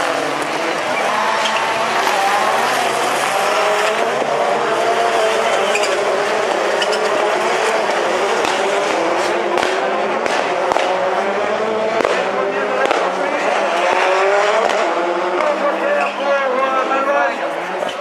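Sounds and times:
race car engines revving: 0.0s - 18.0s
sharp cracks: 8.4s - 11.0s, 12.0s - 13.2s, 13.9s - 15.5s.

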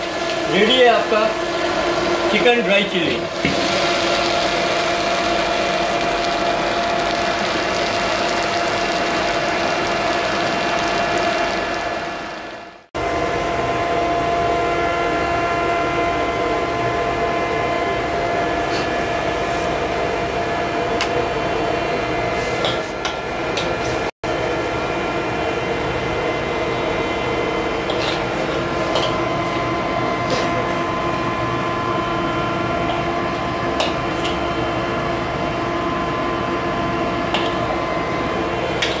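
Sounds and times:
steady machine hum: 0.0s - 39.0s.

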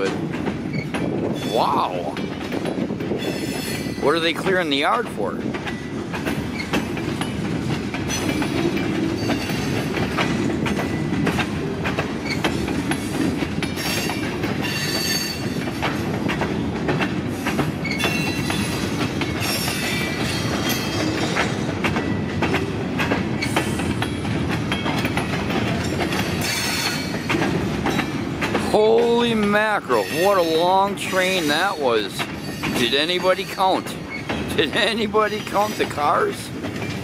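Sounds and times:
clickety-clack over rail joints: 0.0s - 37.0s
train wheels rumbling on rail: 0.0s - 37.0s
high wheel squeals: 29.9s - 34.5s.

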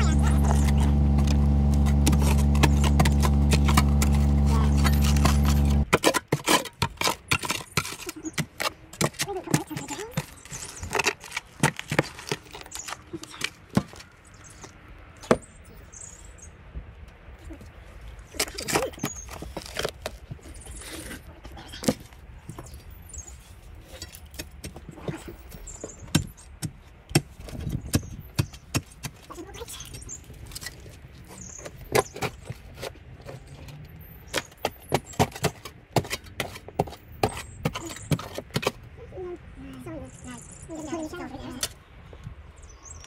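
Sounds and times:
spade clinking and scraping stony soil: 0.0s - 13.8s, 23.1s - 26.7s, 28.7s - 38.8s.

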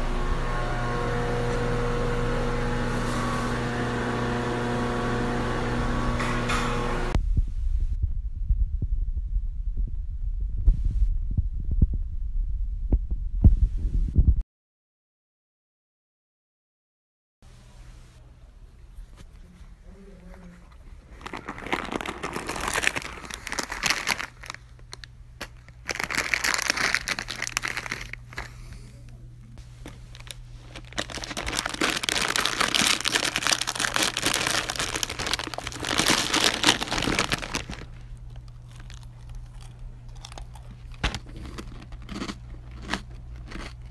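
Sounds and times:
snack packaging crinkling: 20.7s - 28.8s, 29.8s - 43.9s.

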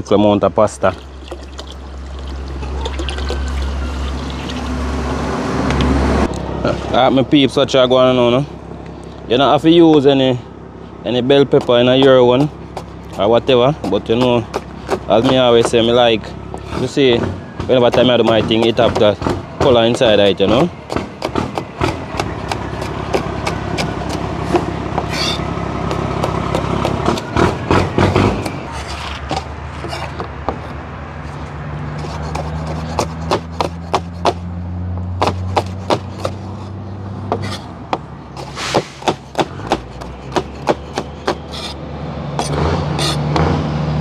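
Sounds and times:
low engine hum: 0.0s - 44.0s
knife chopping on cutting board: 11.6s - 15.9s, 32.0s - 34.4s, 35.2s - 36.4s, 38.4s - 41.8s.

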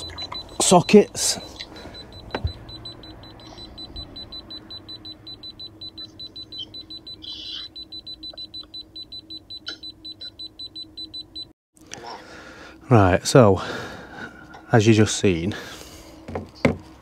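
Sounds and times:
voltage detector beeping rapidly: 0.0s - 11.5s.

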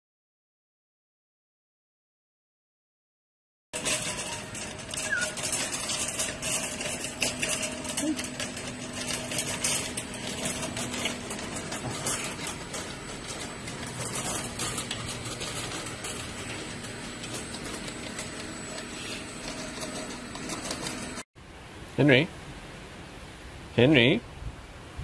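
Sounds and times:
wire shopping cart rattling: 3.8s - 21.2s.

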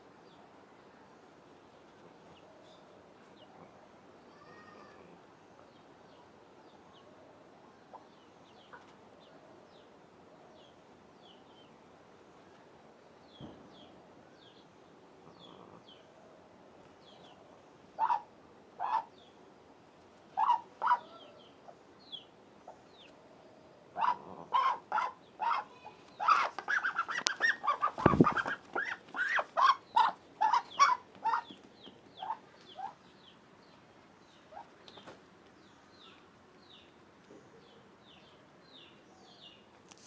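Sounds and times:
ducks calling: 18.0s - 19.1s, 20.4s - 21.2s, 24.0s - 31.6s
scuffling thump: 27.9s - 28.8s.

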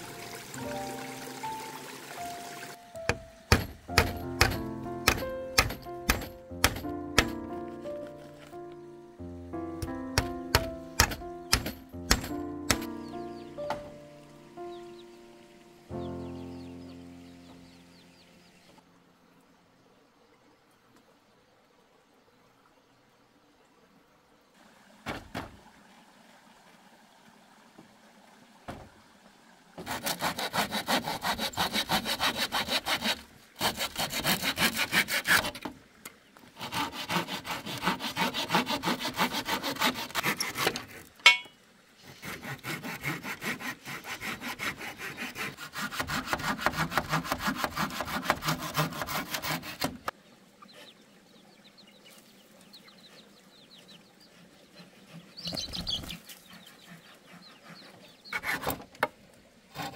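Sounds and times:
hand saw cutting wood: 3.0s - 7.7s, 9.8s - 13.8s, 29.8s - 35.8s, 36.4s - 50.1s, 54.8s - 59.1s
sharp knock: 10.2s - 13.0s.

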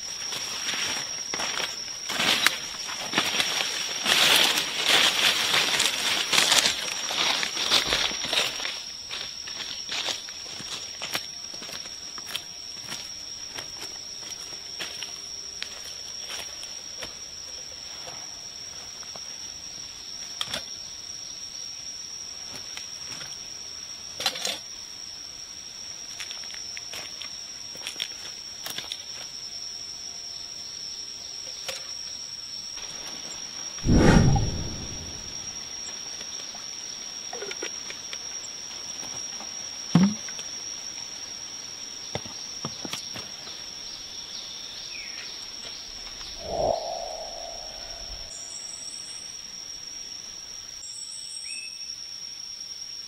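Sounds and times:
high-pitched insect drone: 0.0s - 42.2s, 42.9s - 53.0s
dry leaves rustling and crunching: 0.4s - 11.7s
bird chirps: 46.2s - 49.0s
low call-like sound: 46.4s - 48.4s.

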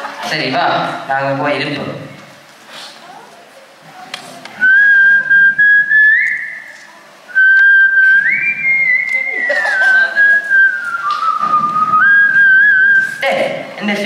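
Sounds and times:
person whistling a slow tune: 4.6s - 13.2s.

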